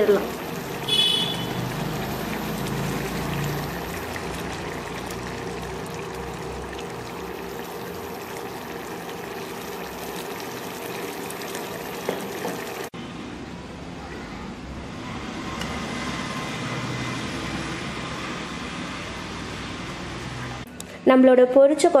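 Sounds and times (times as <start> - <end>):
curry bubbling in a pan: 0.0 - 13.0.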